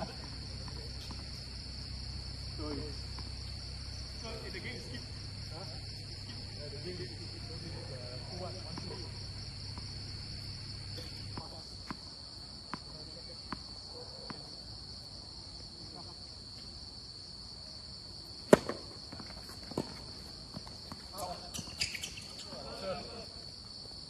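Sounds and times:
tennis ball bouncing on court: 0.0s - 1.7s, 2.9s - 3.6s, 8.7s - 12.9s, 18.5s - 22.2s
high insect trill: 0.0s - 24.0s
racket hitting ball: 18.5s - 18.9s.

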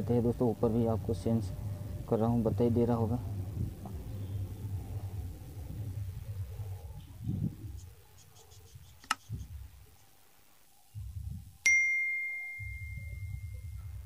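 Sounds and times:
sharp click: 9.0s - 9.3s
bright bell ding: 11.6s - 13.8s.

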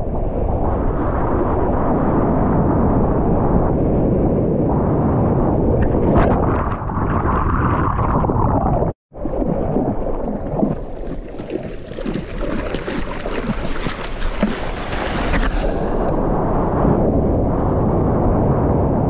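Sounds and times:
muffled churning water: 0.0s - 19.0s
water splashing against board: 10.2s - 16.2s.

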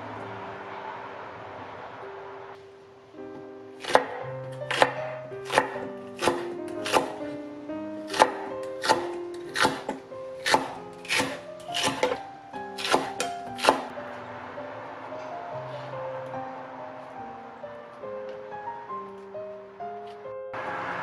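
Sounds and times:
background music: 0.0s - 21.0s
knife chopping on wooden board: 3.8s - 7.2s, 8.1s - 12.2s, 12.8s - 13.9s.

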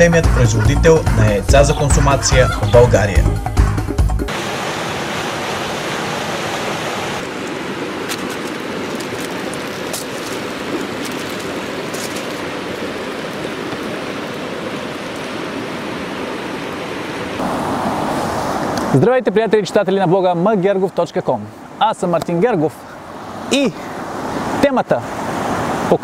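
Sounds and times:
river rushing over rocks: 4.3s - 19.1s.

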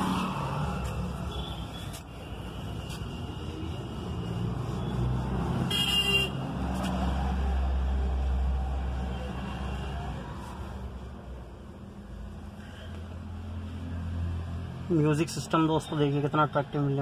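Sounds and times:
traffic rumble: 0.0s - 17.0s
vehicle horn toot: 5.7s - 6.4s.

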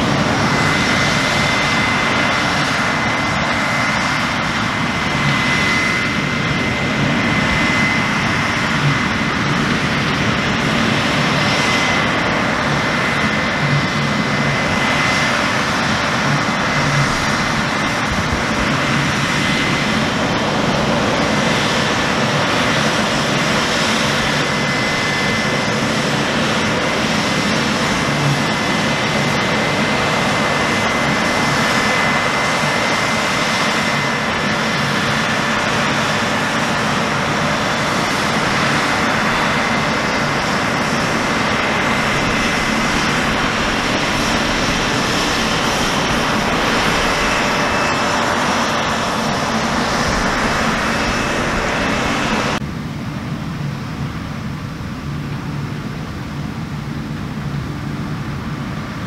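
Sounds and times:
combine harvester droning: 34.5s - 52.6s.

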